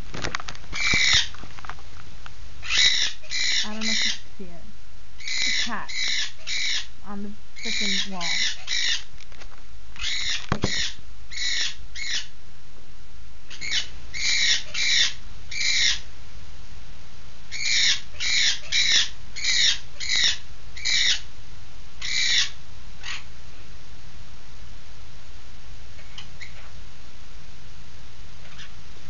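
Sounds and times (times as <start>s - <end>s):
bird squawking loudly: 0.8s - 1.3s, 2.6s - 4.2s, 5.2s - 6.9s, 7.6s - 9.1s, 10.0s - 12.3s, 13.5s - 16.0s, 17.5s - 21.3s, 22.0s - 23.3s.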